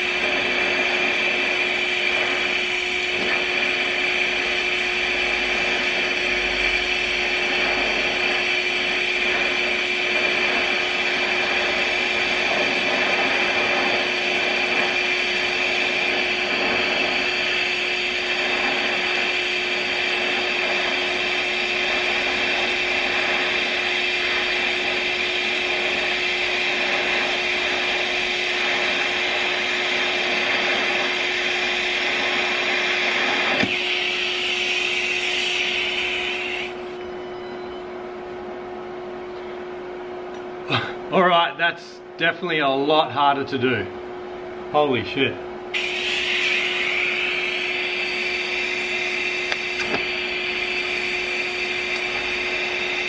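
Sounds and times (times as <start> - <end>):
welding arc buzzing hiss: 0.0 - 37.1, 44.8 - 53.0
steady hum: 0.0 - 53.0
arc cutting off click: 0.2 - 34.0, 45.8 - 53.0.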